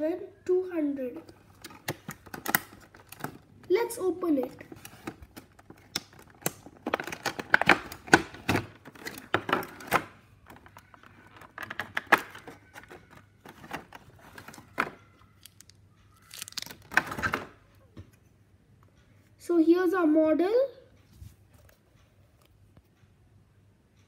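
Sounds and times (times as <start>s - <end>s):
plastic packaging crackling: 1.6s - 3.7s, 4.6s - 17.6s.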